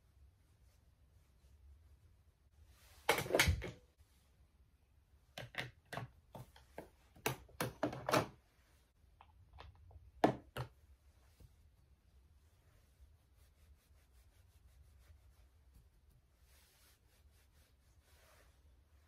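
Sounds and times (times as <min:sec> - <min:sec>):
makeup containers clattering and clicking: 0:05.4 - 0:08.4.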